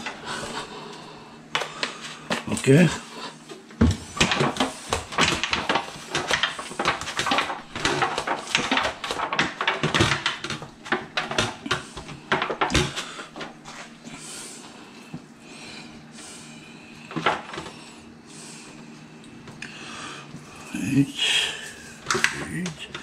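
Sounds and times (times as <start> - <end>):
knocks and clatter on metal tray: 3.8 - 13.0.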